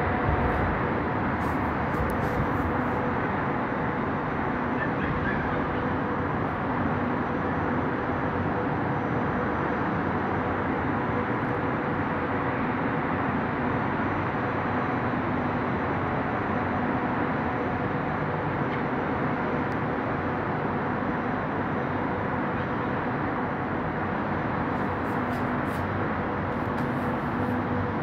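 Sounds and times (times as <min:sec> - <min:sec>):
distant traffic roar: 0:00.0 - 0:28.0
wind: 0:00.0 - 0:28.0.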